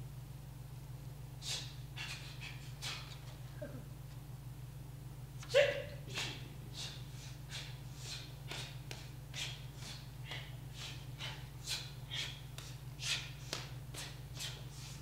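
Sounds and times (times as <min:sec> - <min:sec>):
sharp hissing breaths: 0:01.4 - 0:03.1, 0:06.1 - 0:15.0.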